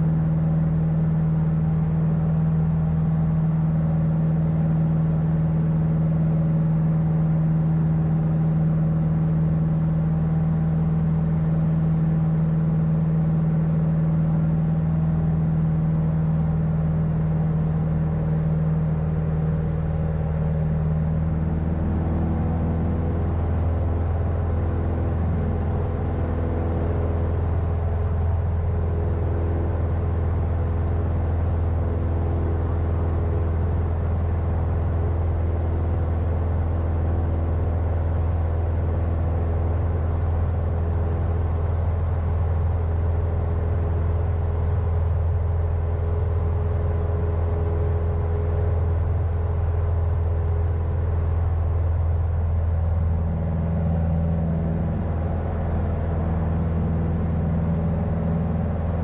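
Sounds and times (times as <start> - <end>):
light aircraft engine droning: 0.0 - 59.0.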